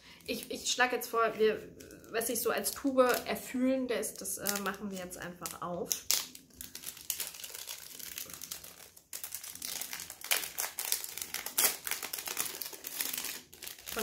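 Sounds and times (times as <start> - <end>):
wrapping paper crinkling: 4.3 - 14.0.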